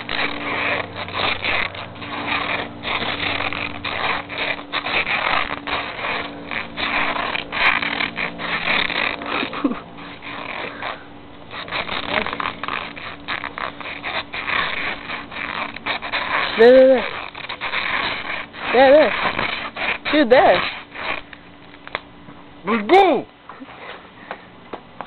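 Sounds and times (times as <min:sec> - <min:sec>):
adhesive tape pulled off roll: 0:00.0 - 0:22.1
muffled nasal breathing: 0:10.4 - 0:12.2.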